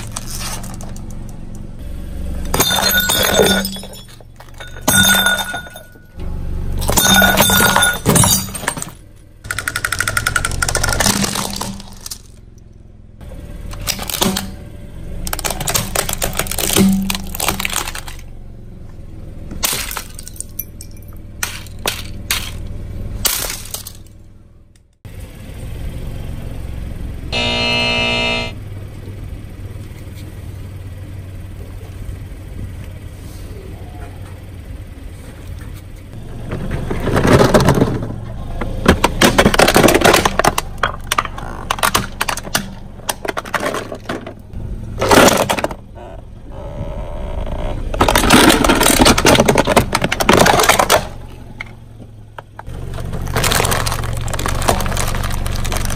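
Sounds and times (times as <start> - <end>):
car tyre crushing objects: 0.0 - 6.2, 6.8 - 24.7, 27.4 - 28.6, 35.5 - 46.4, 47.4 - 55.9
steady low hum: 10.3 - 39.0
brief pitched sound: 27.4 - 28.6.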